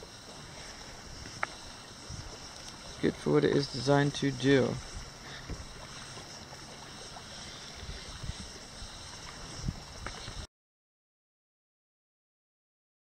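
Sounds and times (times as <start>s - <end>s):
kayak paddle splashing water: 0.0s - 10.5s
wind thumps on microphone: 4.8s - 6.1s, 7.8s - 10.5s.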